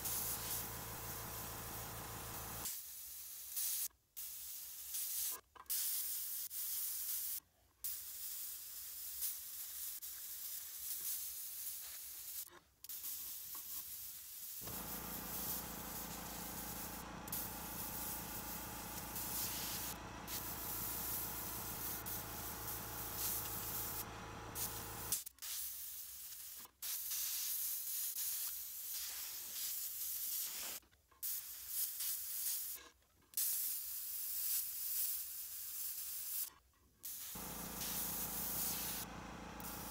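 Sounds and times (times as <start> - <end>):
airbrush spraying hiss: 0.0 - 32.8, 33.4 - 39.9.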